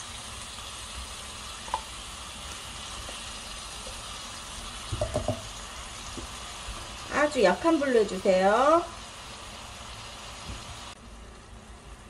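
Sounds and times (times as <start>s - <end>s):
food sizzling in a frying pan: 0.0s - 12.0s
soft knocks: 4.9s - 5.4s.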